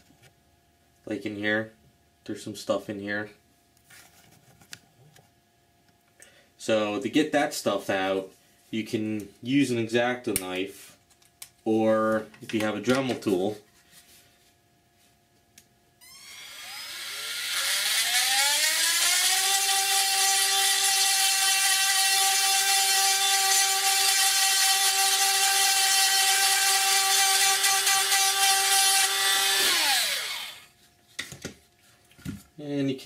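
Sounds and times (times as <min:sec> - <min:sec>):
rotary tool whining: 0:16.0 - 0:30.9.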